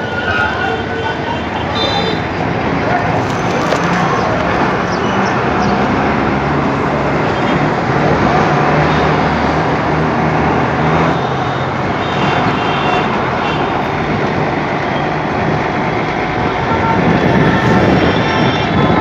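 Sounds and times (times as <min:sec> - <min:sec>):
heavy road traffic: 0:00.0 - 0:19.0.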